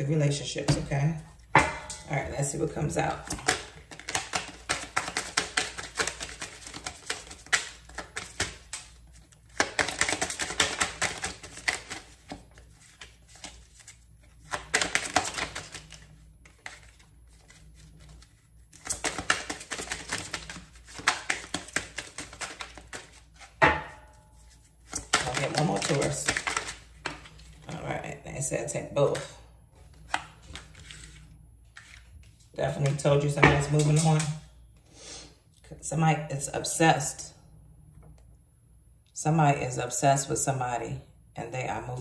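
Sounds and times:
cards being shuffled: 3.1 - 23.6, 24.4 - 27.7, 29.8 - 34.3.

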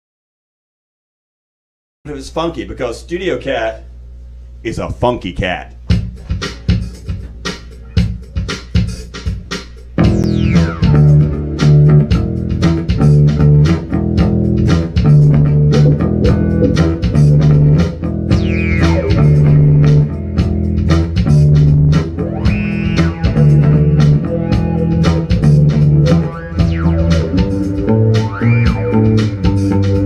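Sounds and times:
live band instrumental groove: 5.9 - 30.0
falling swoops: 10.0 - 11.9
electric bass riff: 10.0 - 30.0.

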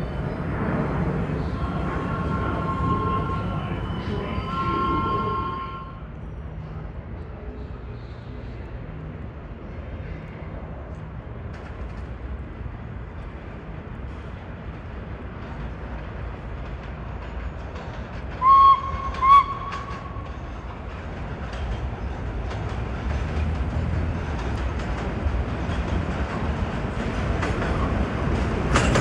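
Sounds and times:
subway train rumbling on tracks: 0.0 - 29.0
train horn blasts: 2.0 - 6.0, 18.4 - 20.3.

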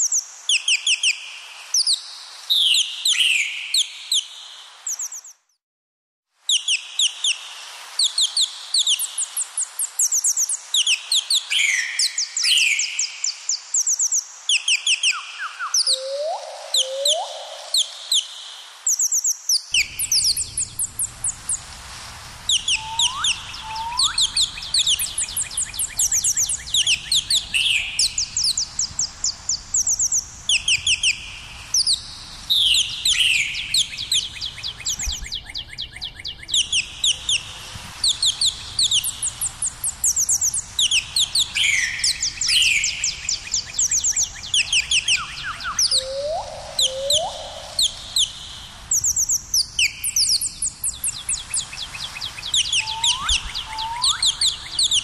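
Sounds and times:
birds chirping: 8.9 - 18.2, 18.9 - 21.7, 22.5 - 55.0
low rising whistles: 19.7 - 55.0.

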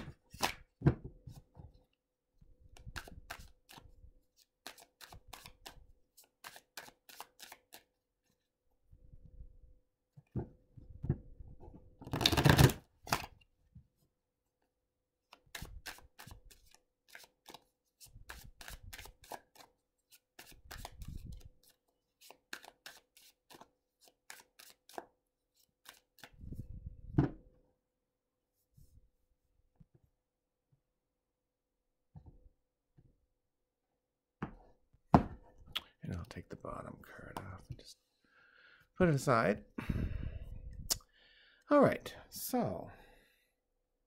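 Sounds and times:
cards being shuffled: 0.0 - 0.7, 2.8 - 7.9, 15.3 - 26.4.

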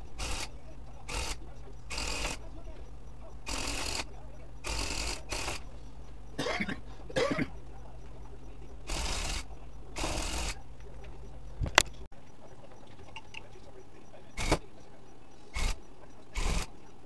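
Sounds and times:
tufting gun bursts: 0.0 - 2.7, 3.3 - 5.7, 8.8 - 10.6, 14.3 - 14.7, 15.5 - 16.8
steady low hum: 0.0 - 17.0.

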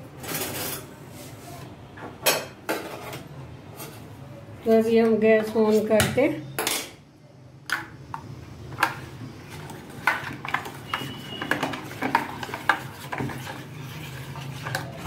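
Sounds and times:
spoon scraping steel bowl: 9.5 - 15.0.

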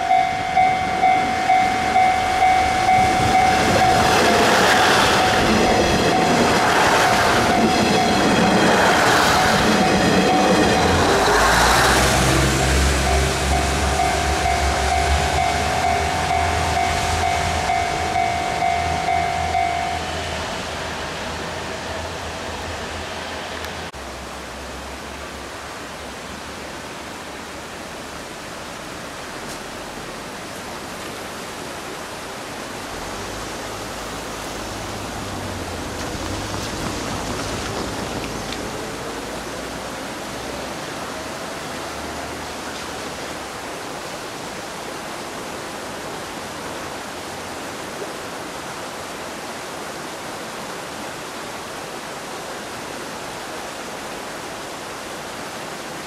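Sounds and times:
faint rising tone: 0.0 - 23.9
steady hissing noise: 0.0 - 56.0.

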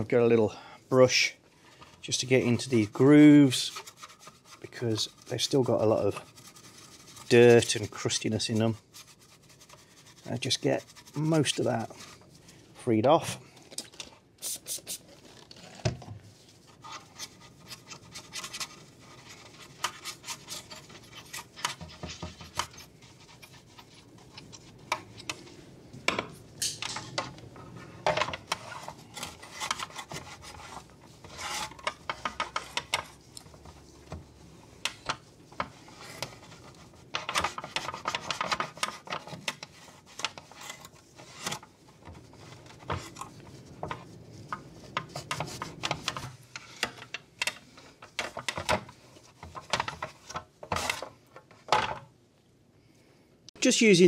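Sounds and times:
brush scrubbing plastic: 1.1 - 13.3, 14.4 - 26.5, 27.1 - 51.5
towel rubbing plastic: 2.0 - 12.7, 14.4 - 25.9, 27.8 - 47.0.

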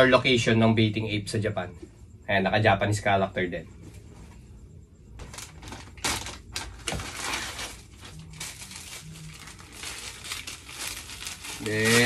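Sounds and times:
plastic packaging crinkling: 5.2 - 12.0.

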